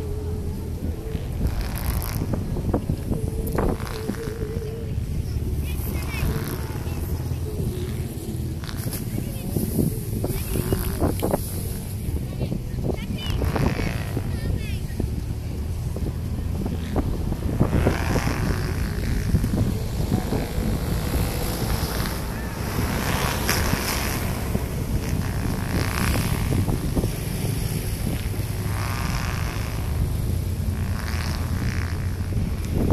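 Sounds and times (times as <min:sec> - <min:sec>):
wind buffeting microphone: 0:00.0 - 0:32.9.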